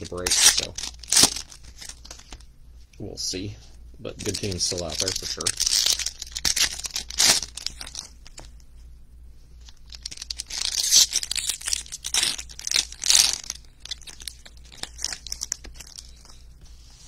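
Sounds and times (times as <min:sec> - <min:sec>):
foil wrappers tearing and crinkling: 0:00.0 - 0:02.4, 0:04.2 - 0:08.5, 0:09.7 - 0:16.3.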